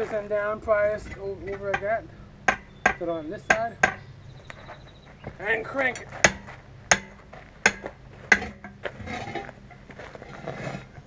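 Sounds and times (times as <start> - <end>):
tire bar clanking against rim: 0.0 - 4.1, 5.8 - 9.8
tire bar scraping: 0.0 - 11.0.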